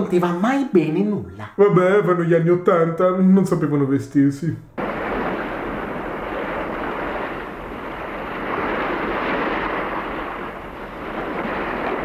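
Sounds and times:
sea surf on shore: 4.8s - 12.0s
wind rushing: 4.8s - 12.0s.

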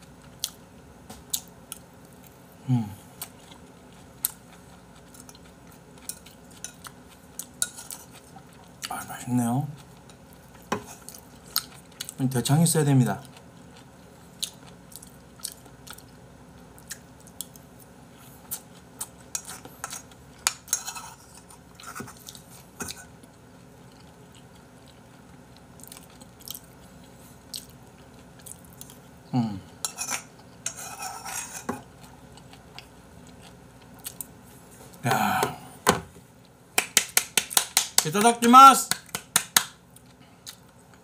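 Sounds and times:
chewing: 3.2s - 8.9s, 13.2s - 29.1s, 29.8s - 35.0s, 39.9s - 41.0s.

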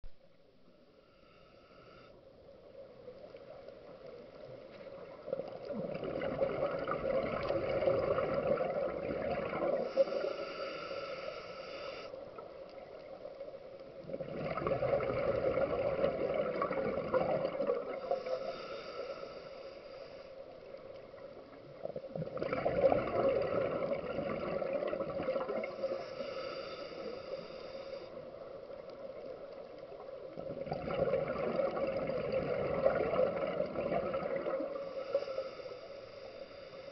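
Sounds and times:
diver breathing through regulator: 1.1s - 2.2s, 9.5s - 12.2s, 18.0s - 20.5s, 25.5s - 28.3s, 34.4s - 36.9s
gurgling exhaled bubbles: 4.9s - 10.4s, 14.0s - 18.5s, 21.6s - 26.1s, 29.1s - 35.1s.

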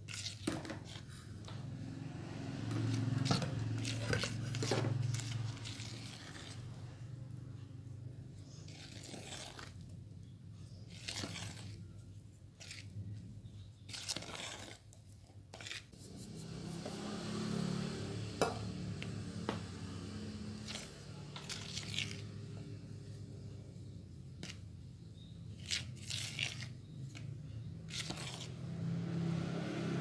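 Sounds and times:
spatula scraping batter in a bowl: 0.0s - 17.6s, 18.2s - 29.4s.

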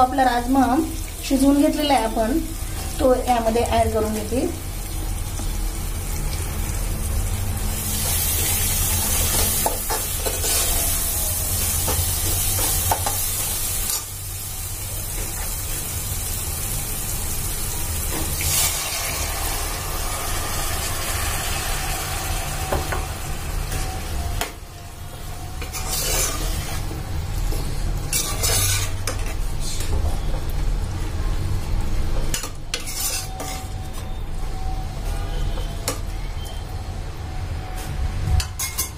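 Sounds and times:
masala sizzling in oil: 0.0s - 38.9s
ladle scraping in pot: 25.6s - 26.9s, 28.1s - 29.4s, 32.3s - 33.8s.

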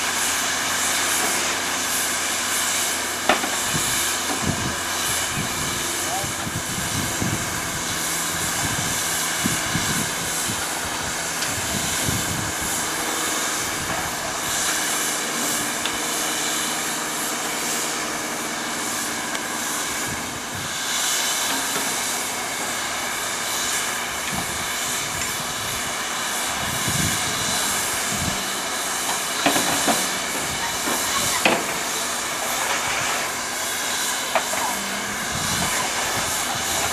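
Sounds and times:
steam locomotive hissing: 0.0s - 36.9s.

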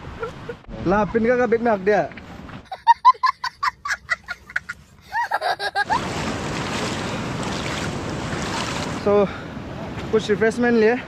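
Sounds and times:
river water flowing over rocks: 6.2s - 9.2s.

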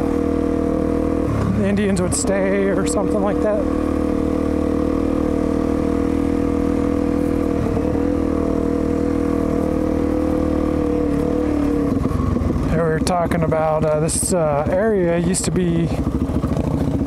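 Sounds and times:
motorcycle engine running steadily: 0.0s - 17.0s.

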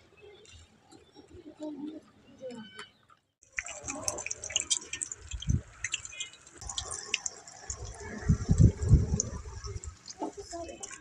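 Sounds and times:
oil sizzling and popping: 3.4s - 11.0s.

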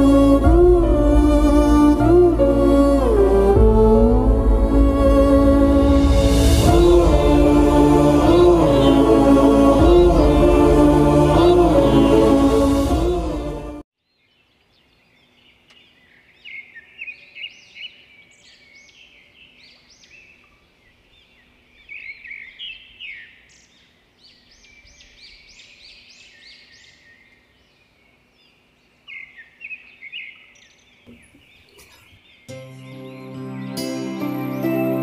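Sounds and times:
small birds chirping: 14.0s - 33.9s.

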